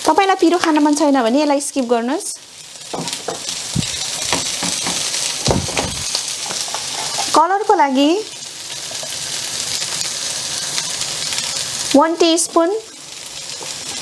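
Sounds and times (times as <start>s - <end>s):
potatoes sizzling in oil: 0.0s - 14.0s
wooden spatula scraping pan: 6.4s - 7.4s.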